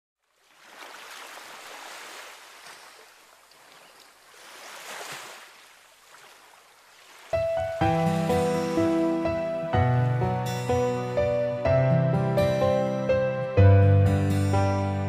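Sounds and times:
sea waves washing onto shore: 0:00.3 - 0:09.7.

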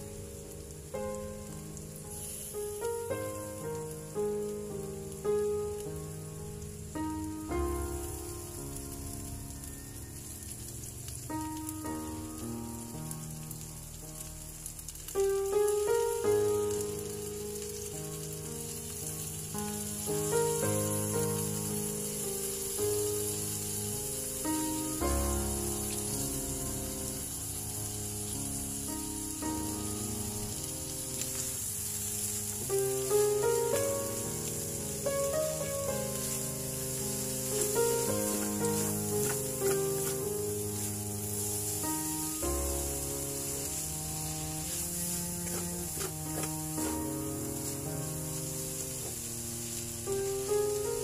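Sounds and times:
food sizzling in a pan: 0:00.0 - 0:51.0
slow sustained background music: 0:00.0 - 0:51.0
spatula stirring: 0:36.2 - 0:41.5, 0:43.3 - 0:49.2.

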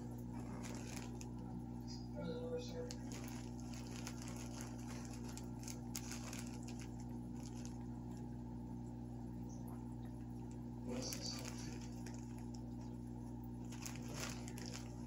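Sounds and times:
steady low hum: 0:00.0 - 0:15.0
cat scratching fabric cushion: 0:00.2 - 0:01.4, 0:02.8 - 0:08.3, 0:10.9 - 0:15.0.

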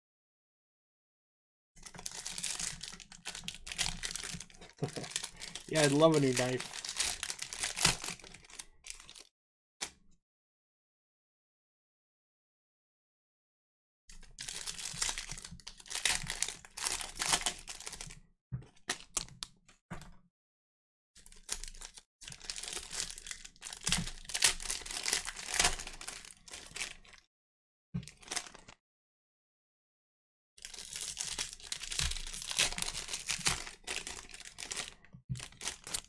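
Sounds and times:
plastic wrapping tearing and crinkling: 0:01.8 - 0:09.3, 0:14.4 - 0:18.2, 0:21.2 - 0:27.2, 0:28.1 - 0:28.8, 0:30.6 - 0:36.0.

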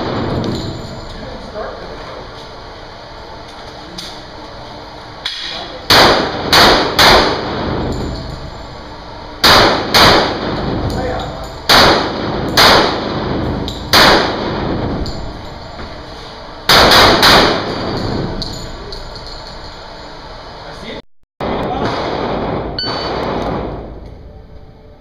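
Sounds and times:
pistol shots echoing indoors: 0:05.4 - 0:08.3, 0:09.4 - 0:15.2, 0:16.7 - 0:18.6, 0:21.4 - 0:24.2.

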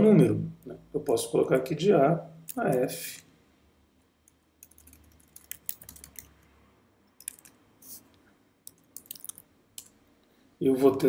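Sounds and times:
computer keyboard clicks: 0:04.6 - 0:06.3, 0:07.2 - 0:07.6, 0:08.6 - 0:09.9.

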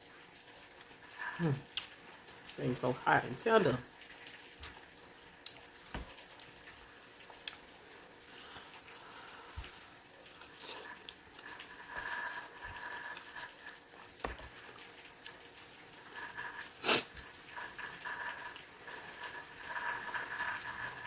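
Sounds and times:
chewing and lip smacking: 0:07.3 - 0:07.7.

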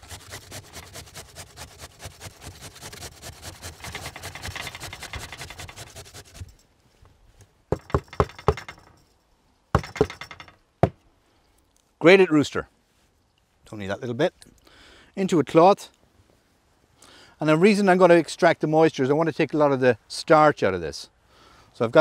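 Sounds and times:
potato grated on metal grater: 0:00.0 - 0:06.5
sharp knocks: 0:07.7 - 0:09.0, 0:09.7 - 0:11.0.

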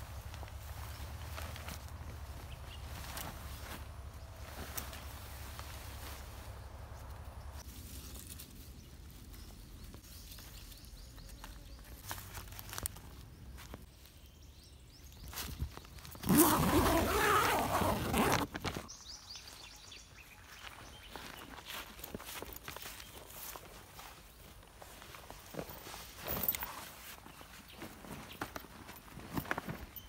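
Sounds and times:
tent fabric rustling: 0:00.0 - 0:08.5, 0:15.5 - 0:18.9, 0:21.1 - 0:30.0
tent clicks: 0:00.1 - 0:07.6, 0:15.4 - 0:18.9.

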